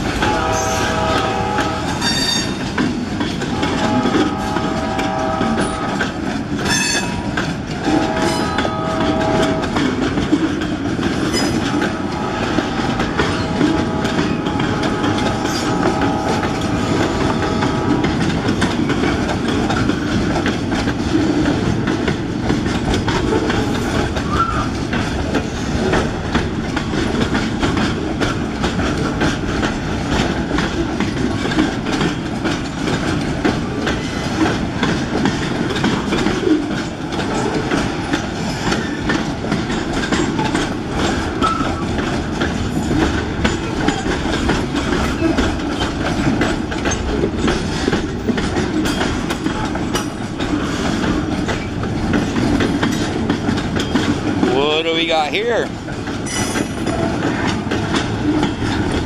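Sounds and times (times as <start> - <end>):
freight train rumble: 0.0 - 59.0
wheels clacking over rail joints: 0.0 - 59.0
wheels squealing: 23.4 - 24.8, 38.5 - 48.2.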